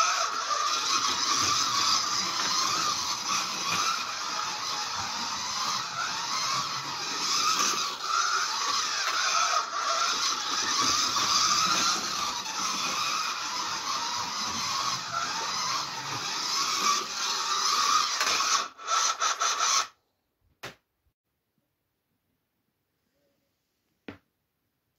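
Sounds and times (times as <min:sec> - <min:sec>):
slot car whirring: 0:00.0 - 0:19.9.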